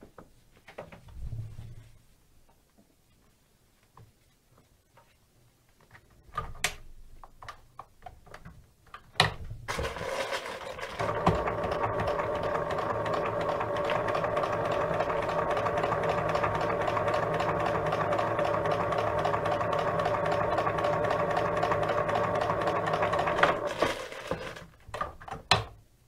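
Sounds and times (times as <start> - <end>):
sewing machine stitching leather: 9.7 - 24.7.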